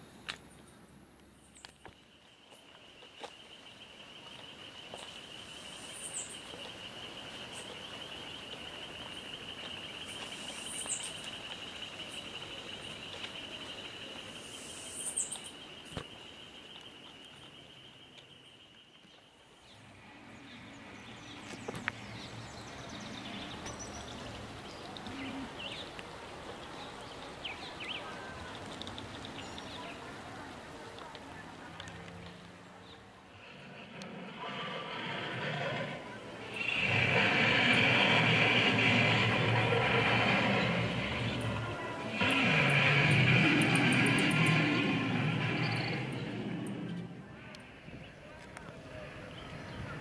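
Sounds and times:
soft outdoor hiss: 0.0s - 50.0s
bird chirps: 1.4s - 19.8s, 31.8s - 47.2s.

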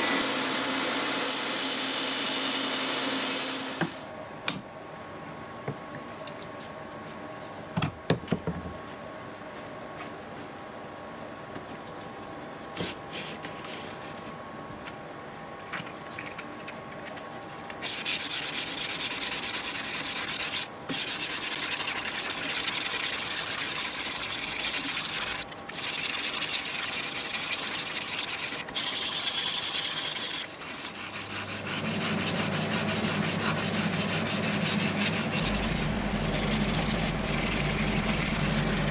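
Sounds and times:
sanding paper scraping steel: 17.8s - 38.9s
steady hum: 30.4s - 38.9s.

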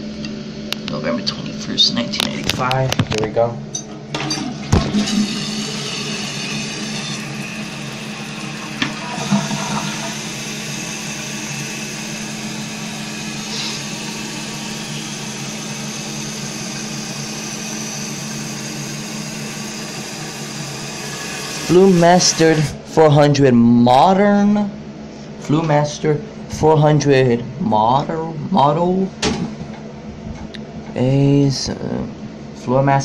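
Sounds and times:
toilet tank refilling hiss: 4.9s - 22.8s.

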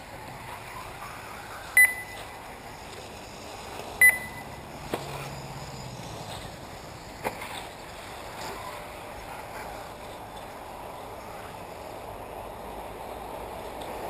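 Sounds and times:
outdoor background noise: 0.0s - 14.0s
short high electronic beeps: 1.8s - 2.3s, 4.0s - 4.6s.

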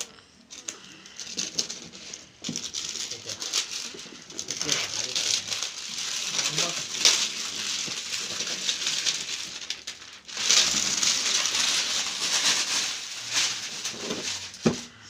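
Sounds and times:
plastic wrapping crinkling: 0.0s - 15.0s.

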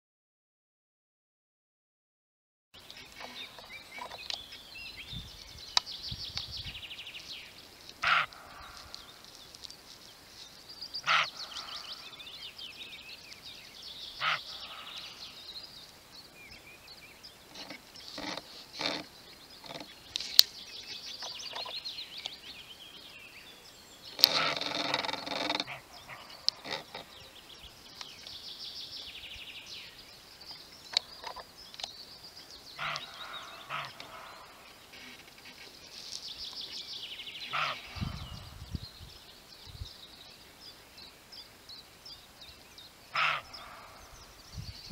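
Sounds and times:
songbirds singing: 2.8s - 44.9s
deer barking: 8.0s - 9.0s, 11.0s - 12.0s, 14.2s - 15.2s, 25.6s - 26.8s, 32.8s - 34.6s, 37.5s - 38.0s, 43.2s - 44.0s.

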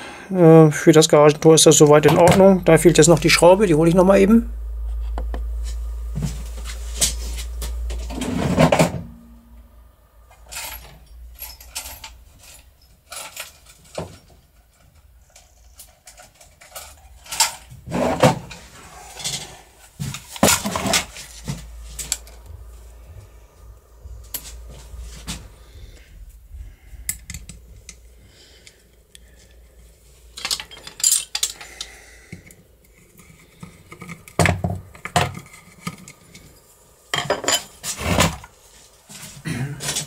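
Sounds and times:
low rumble: 1.0s - 14.0s, 18.5s - 30.4s
small metal parts clicking: 10.4s - 17.7s, 30.3s - 32.6s
metal parts clattering: 10.4s - 18.6s, 30.3s - 31.9s.

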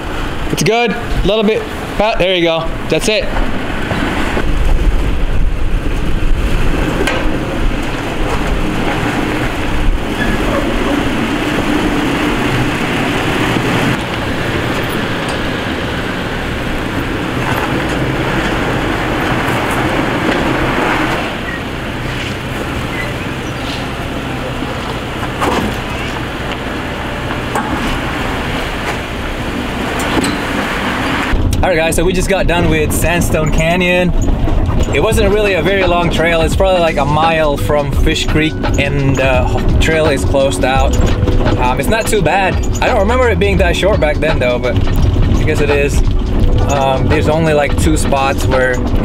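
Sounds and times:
off-road vehicle engine: 0.0s - 49.0s
road noise: 0.0s - 49.0s.

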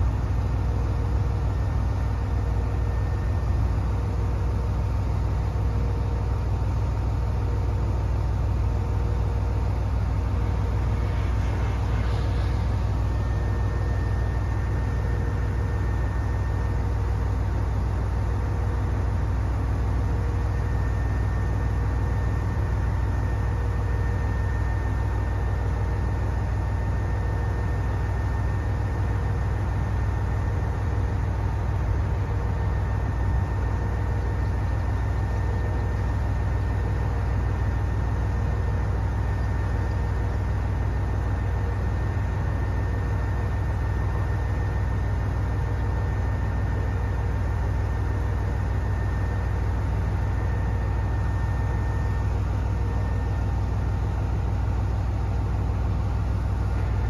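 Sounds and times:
faint even whine: 0.0s - 57.0s
diesel engine idling: 0.1s - 22.7s.

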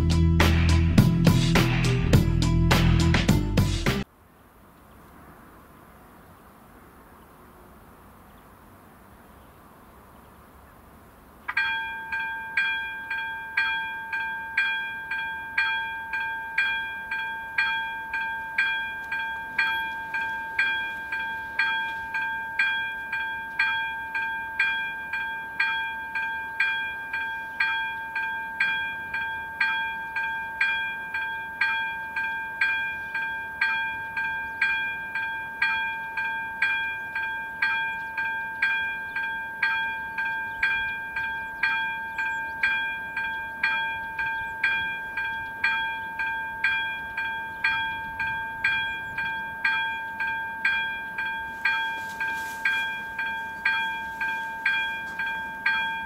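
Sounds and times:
level crossing warning bell: 11.5s - 56.0s.

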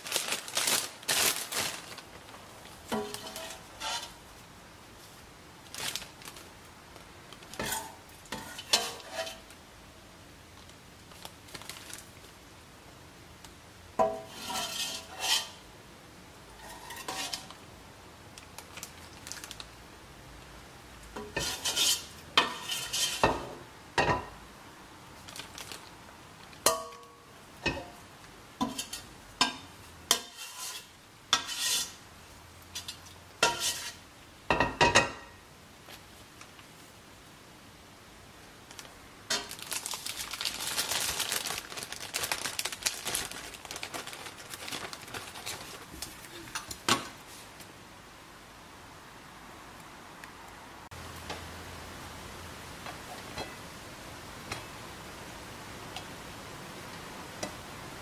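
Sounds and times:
metal ladle scraping stockpot: 2.9s - 4.2s, 7.6s - 9.5s, 14.1s - 15.6s, 16.6s - 17.5s, 21.2s - 23.4s, 30.1s - 32.0s, 32.8s - 34.0s.

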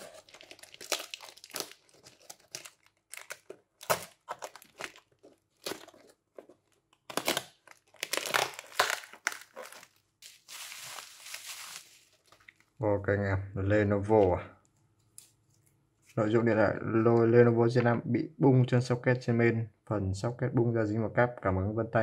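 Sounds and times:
packaging tearing and crinkling: 0.0s - 12.7s.

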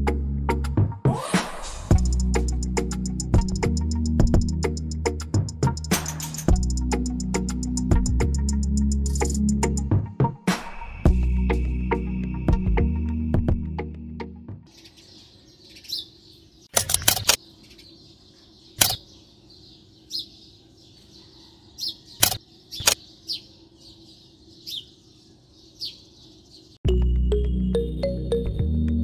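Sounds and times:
music: 0.0s - 14.7s, 26.8s - 29.0s
birds chirping: 14.7s - 26.8s.

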